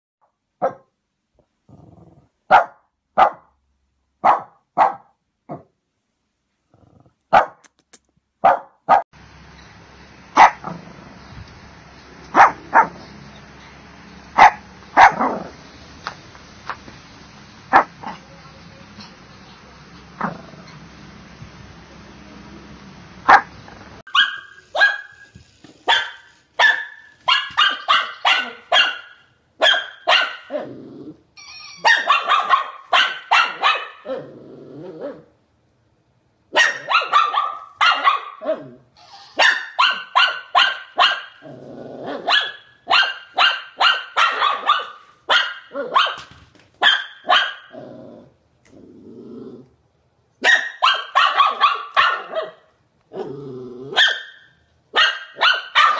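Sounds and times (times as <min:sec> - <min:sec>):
dog barking sharply: 0:00.6 - 0:00.9, 0:02.5 - 0:03.5, 0:04.2 - 0:05.7, 0:07.3 - 0:07.7, 0:08.4 - 0:09.1, 0:10.4 - 0:10.7, 0:12.3 - 0:13.0, 0:14.4 - 0:15.4, 0:23.3 - 0:23.5, 0:24.1 - 0:25.2, 0:25.9 - 0:30.5, 0:31.8 - 0:34.1, 0:36.5 - 0:38.6, 0:39.3 - 0:41.4, 0:42.2 - 0:47.7, 0:50.4 - 0:52.7, 0:54.0 - 0:55.9
dog growling: 0:01.6 - 0:02.4, 0:06.7 - 0:07.3, 0:20.2 - 0:20.8, 0:30.5 - 0:31.3, 0:34.0 - 0:35.3, 0:38.4 - 0:38.9, 0:41.4 - 0:42.3, 0:47.7 - 0:49.8, 0:53.1 - 0:54.0.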